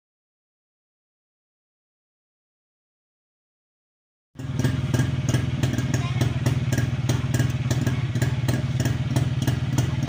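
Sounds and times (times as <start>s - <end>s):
light regular engine tick: 4.4s - 10.0s
two-stroke engine idling: 4.4s - 10.0s.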